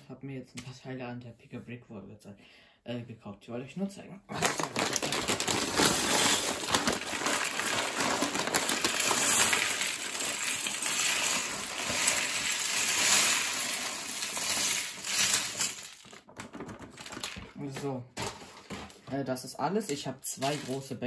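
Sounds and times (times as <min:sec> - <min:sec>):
paper bag crinkling: 0:04.3 - 0:19.1, 0:20.4 - 0:20.9
plastic pieces clattering: 0:04.3 - 0:19.1, 0:19.8 - 0:21.0.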